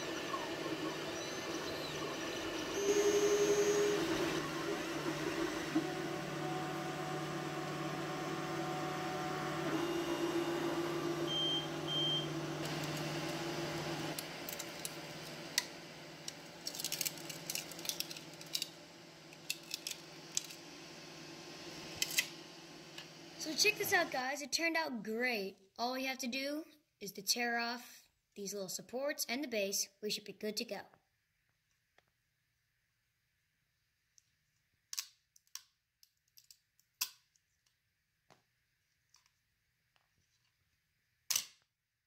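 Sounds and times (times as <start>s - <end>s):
printer stepper motors whirring: 0.0s - 16.4s.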